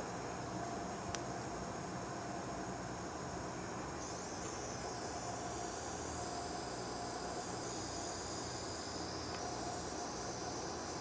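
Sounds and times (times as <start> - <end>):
heat gun blowing hiss: 4.0 - 11.0.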